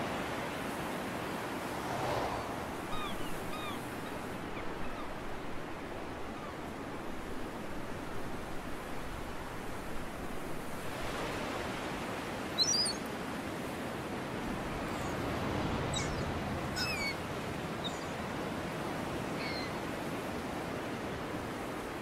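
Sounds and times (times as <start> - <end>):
seaside surf: 0.0 - 22.0
high bird calls: 2.9 - 5.1, 12.6 - 13.1, 15.8 - 18.3, 19.3 - 19.8.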